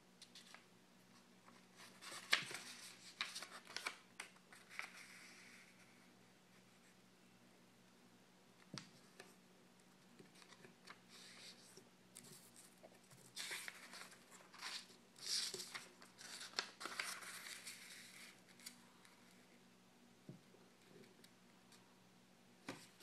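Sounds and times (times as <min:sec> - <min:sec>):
paper rustling as it is folded: 0:00.2 - 0:06.6, 0:10.2 - 0:19.4.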